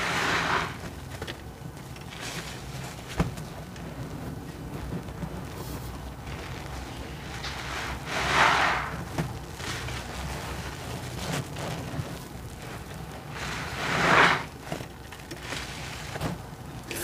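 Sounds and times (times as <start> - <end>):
sponge gushing water and foam: 0.0 - 0.8, 7.2 - 14.8.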